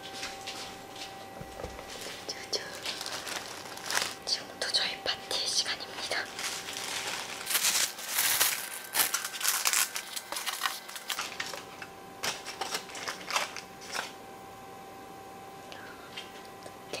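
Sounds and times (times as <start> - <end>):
food packaging rustling: 0.0 - 4.4, 5.9 - 14.2.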